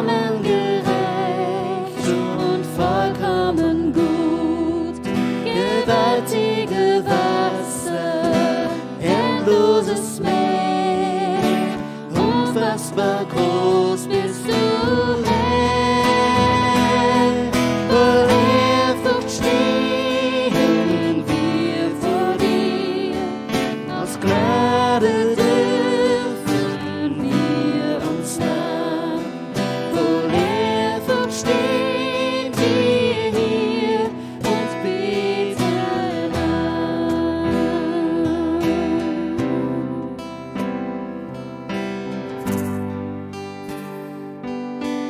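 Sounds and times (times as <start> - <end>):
person singing with vibrato: 0.0 - 40.5
strummed acoustic guitar: 0.0 - 45.0.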